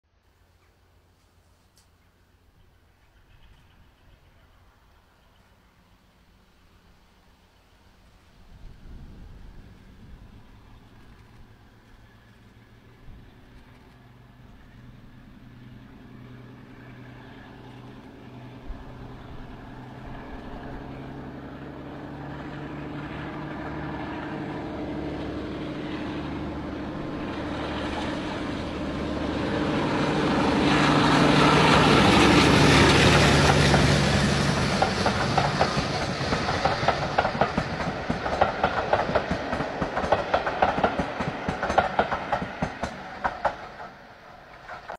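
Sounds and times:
diesel locomotive engine drone: 0.1 - 44.9
train wheels clickety-clack: 29.8 - 44.9.

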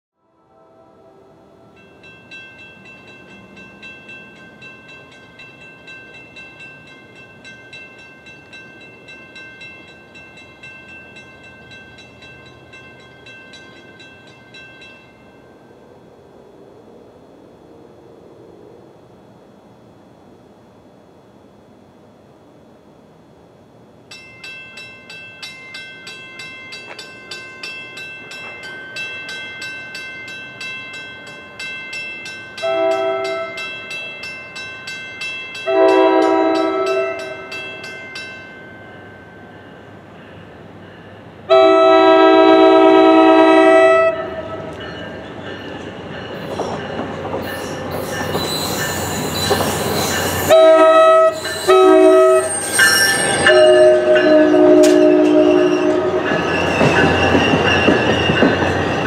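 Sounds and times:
locomotive horn blasts: 0.2 - 1.8, 32.6 - 33.7, 35.7 - 37.5, 41.5 - 44.7, 50.4 - 52.6, 53.4 - 56.3
train rumble and rail noise: 0.5 - 59.0
crossing bell dinging: 1.7 - 15.8, 24.1 - 59.0.

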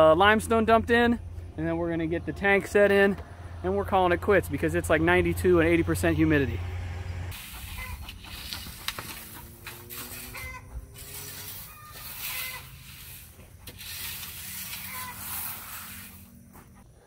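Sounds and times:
chickens clucking: 7.3 - 11.0
rake scraping through gravel: 7.3 - 16.8.

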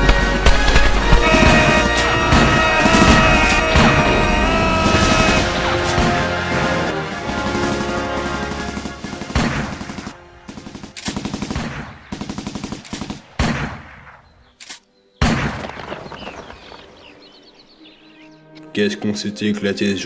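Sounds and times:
automatic gunfire bursts: 7.8 - 13.6
heavy single gunshots: 9.0 - 14.2, 15.2 - 16.5.

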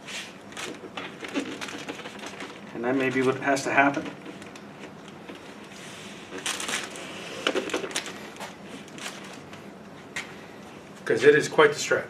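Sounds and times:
rubber rubbing and rustling: 0.0 - 9.5.

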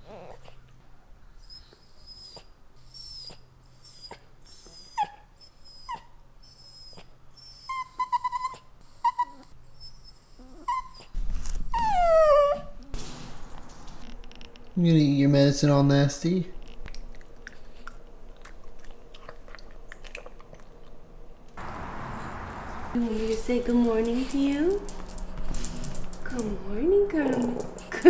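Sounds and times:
dog whining: 0.0 - 0.7, 1.3 - 12.9.

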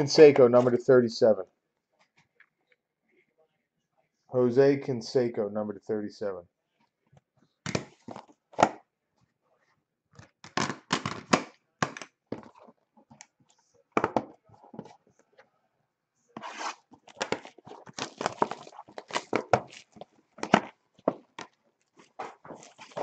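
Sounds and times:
cardboard and wrapping tearing: 16.4 - 23.0.

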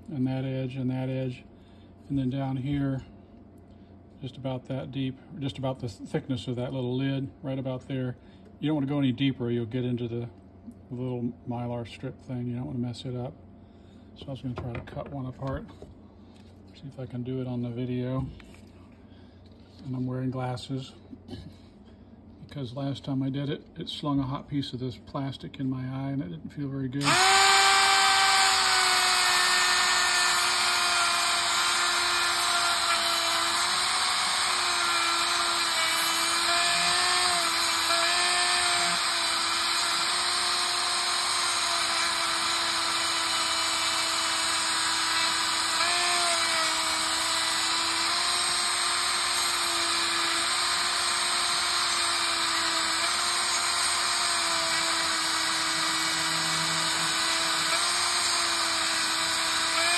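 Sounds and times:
rotary tool cutting plastic: 27.0 - 59.9.

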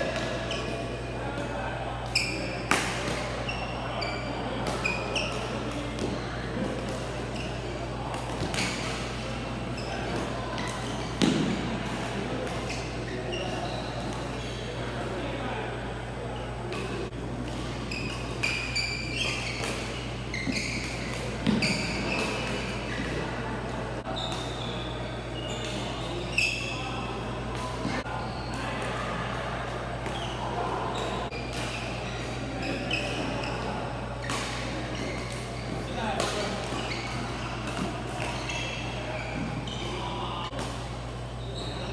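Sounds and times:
shoes squeaking on court: 0.0 - 15.2, 16.3 - 41.9
rackets hitting shuttlecock: 2.2 - 3.5, 4.6 - 13.0, 16.7 - 23.2, 34.2 - 39.6.

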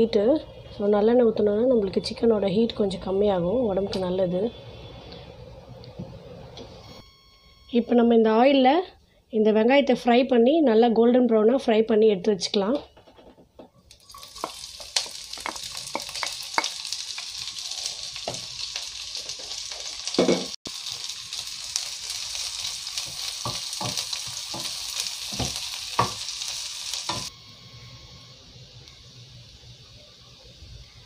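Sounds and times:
onions sizzling in oil: 13.9 - 28.0.

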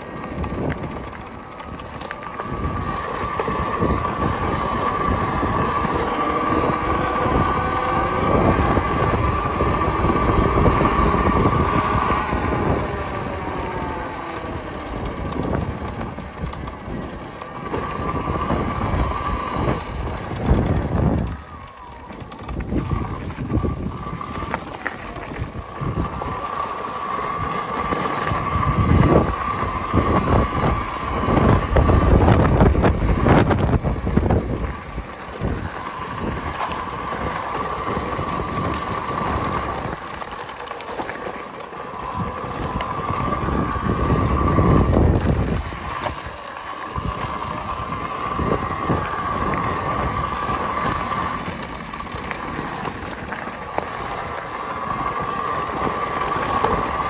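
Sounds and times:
electric motor whine: 0.0 - 57.0
tyres rumbling on gravel: 0.0 - 57.0
wind buffeting microphone: 0.0 - 57.0.

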